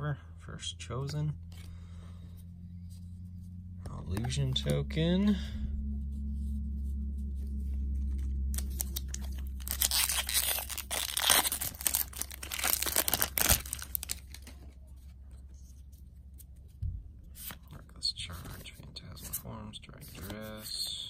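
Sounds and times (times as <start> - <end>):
foil wrapper crackling: 8.5 - 14.6.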